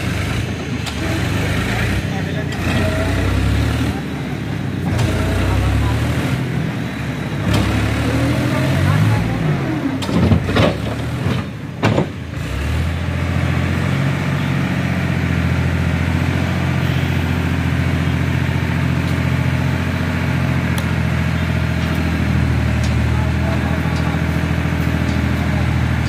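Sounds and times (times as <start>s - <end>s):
tractor diesel engine running: 0.0s - 26.0s
sharp knocks: 10.0s - 12.2s.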